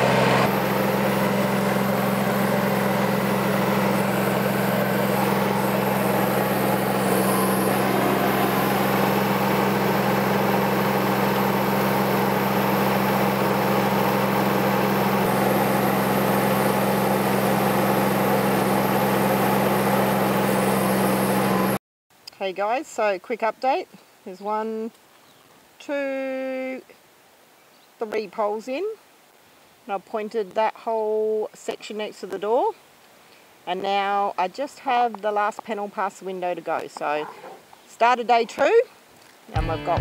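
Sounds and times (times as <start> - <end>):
excavator engine running: 0.0 - 21.8.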